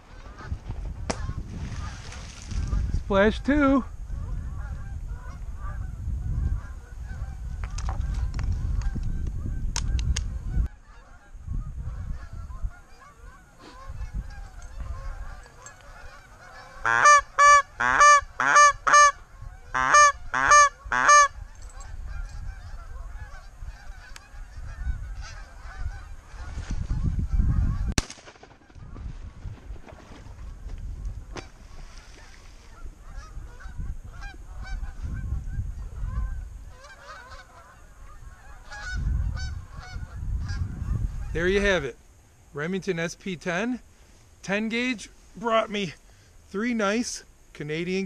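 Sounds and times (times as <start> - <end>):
geese honking: 0.0 - 9.7, 10.4 - 27.9, 31.4 - 41.4
wind and handling rumble: 0.0 - 16.8, 19.2 - 48.0
sharp crack: 27.9 - 28.8.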